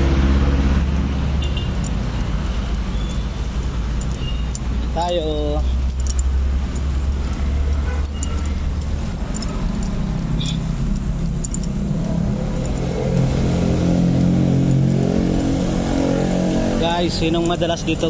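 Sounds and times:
light ticks and rattles: 0:00.0 - 0:18.0
vehicle engine rumbling: 0:00.0 - 0:18.0.

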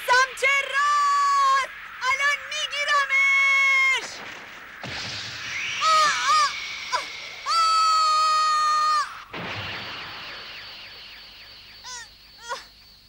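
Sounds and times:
cartoon whoosh: 0:04.8 - 0:08.2
high wobbling cry: 0:05.8 - 0:09.3, 0:11.8 - 0:12.7
long high shout: 0:07.5 - 0:09.2.

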